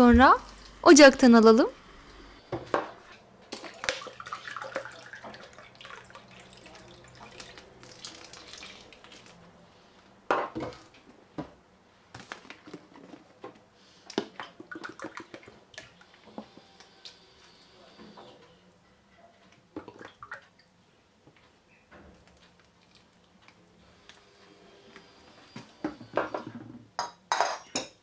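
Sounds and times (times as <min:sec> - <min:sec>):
liquid pouring: 0:03.5 - 0:09.4
sauce boiling and bubbling: 0:03.6 - 0:09.6.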